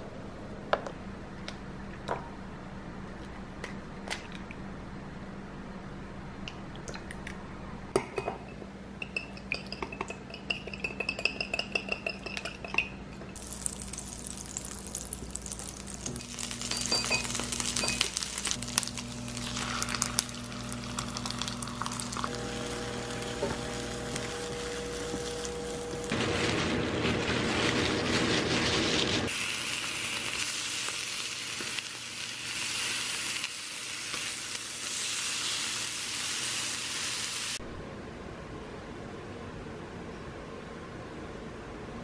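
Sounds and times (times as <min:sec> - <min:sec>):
utensil beating eggs in bowl: 0:09.4 - 0:30.6
rice and egg sizzling in pan: 0:13.4 - 0:37.6
utensil scraping pan: 0:23.3 - 0:29.4.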